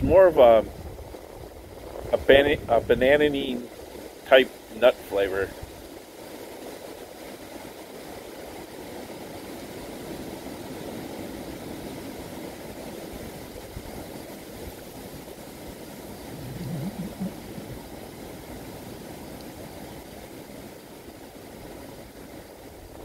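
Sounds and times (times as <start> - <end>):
outdoor low rumble: 16.1 - 18.5
low wavering tone: 16.3 - 17.9.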